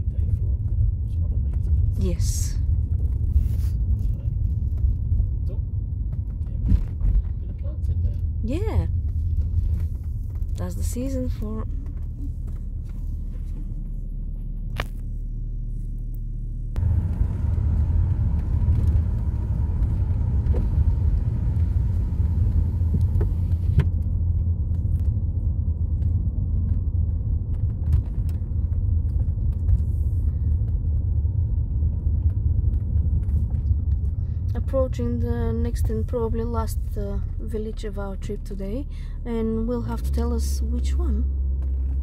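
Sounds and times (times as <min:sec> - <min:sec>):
car driving interior rumble: 0:00.0 - 0:42.0.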